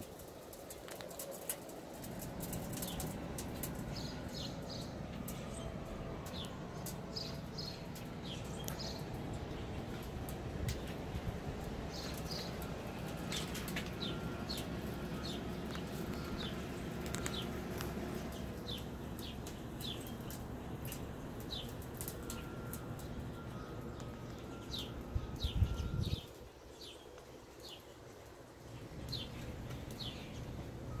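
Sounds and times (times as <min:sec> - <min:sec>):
steady low rumble: 0:01.6 - 0:26.3
songbird chirping high notes: 0:11.8 - 0:28.0.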